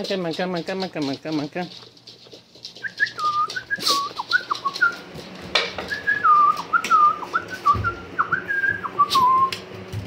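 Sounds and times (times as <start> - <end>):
person whistling for dog: 2.8 - 4.9, 5.9 - 9.6.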